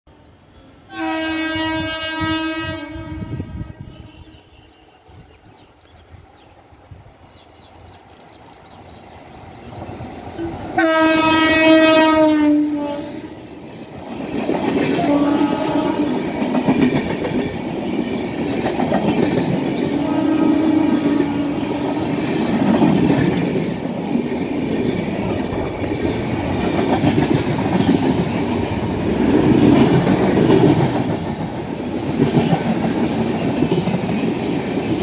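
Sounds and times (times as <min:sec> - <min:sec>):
locomotive horn blasts: 0:00.9 - 0:05.2, 0:10.4 - 0:13.2, 0:15.0 - 0:16.2, 0:20.0 - 0:21.8
train coaches rushing and clacking: 0:04.0 - 0:35.0.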